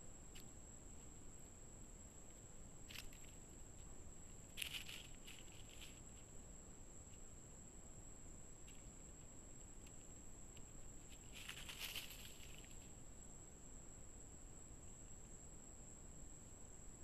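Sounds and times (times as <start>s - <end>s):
faint high electronic whine: 0.0s - 17.0s
faint short crackles: 10.6s - 12.9s.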